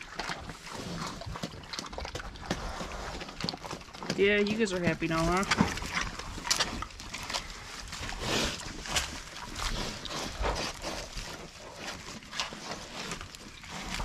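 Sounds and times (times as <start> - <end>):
pigs crunching and chewing: 0.0 - 14.0.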